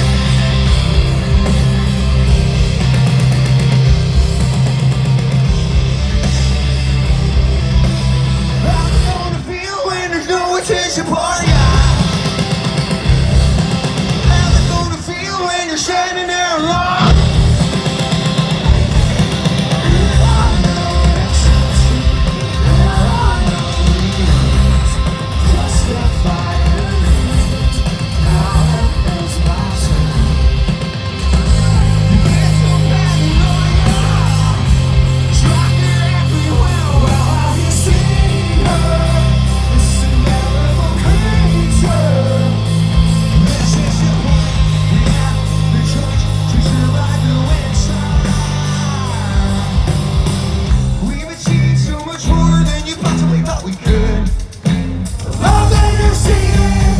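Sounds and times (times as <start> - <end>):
heavy bass: 0.0 - 10.1, 11.2 - 15.4, 16.6 - 56.9
distorted electric guitar: 0.0 - 56.9
drums: 0.0 - 56.9
sung vocals: 7.8 - 56.9.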